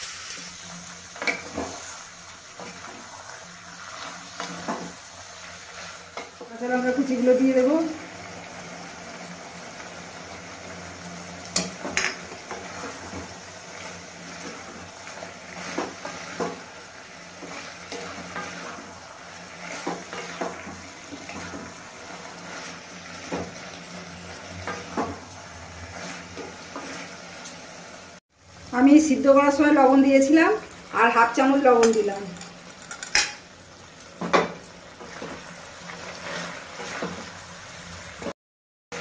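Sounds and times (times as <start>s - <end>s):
faint sizzle: 0.0s - 39.0s
wooden spatula scraping metal pan: 17.4s - 23.7s, 25.8s - 27.4s, 35.0s - 37.5s.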